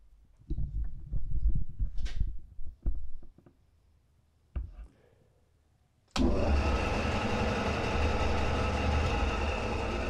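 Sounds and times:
bandsaw motor humming and whirring: 6.2s - 10.0s.

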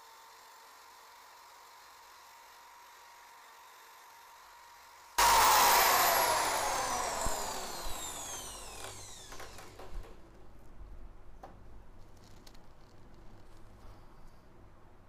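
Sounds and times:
electric drill whine winding down: 5.2s - 10.2s.

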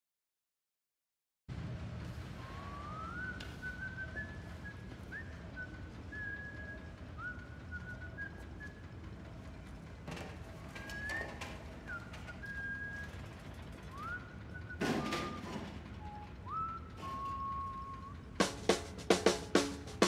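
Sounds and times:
factory machinery rumble: 1.5s - 20.0s
person whistling: 2.4s - 8.9s, 10.7s - 20.0s.

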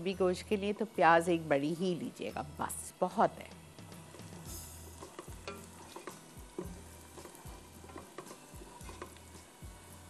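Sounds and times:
onion sizzling in oil: 0.0s - 10.0s
wooden spoon scraping pot: 4.0s - 9.4s.

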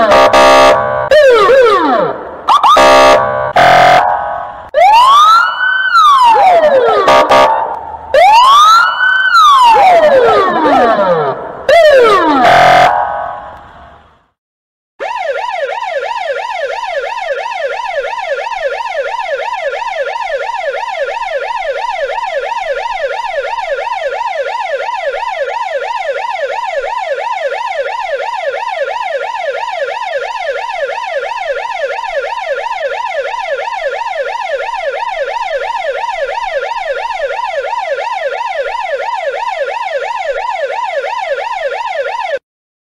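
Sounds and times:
police siren yelping: 0.0s - 13.5s, 15.0s - 42.4s.

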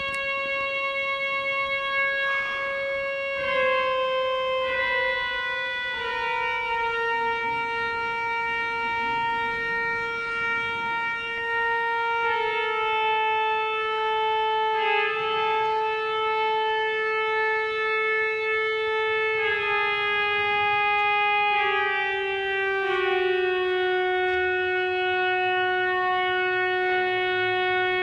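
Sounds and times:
pipe organ long held notes: 0.0s - 28.0s.

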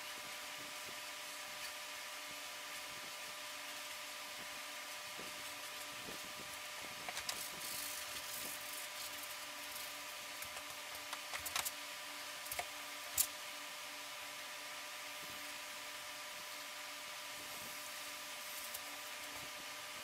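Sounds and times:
faint electrical hum: 0.0s - 20.0s
steady hiss: 0.0s - 20.0s
paintbrush strokes on canvas: 5.0s - 10.1s.

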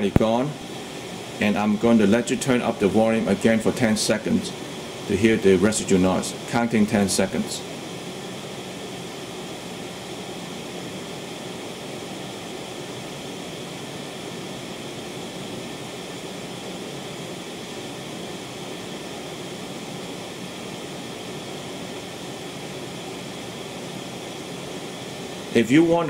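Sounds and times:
amplifier hiss: 0.0s - 26.0s.

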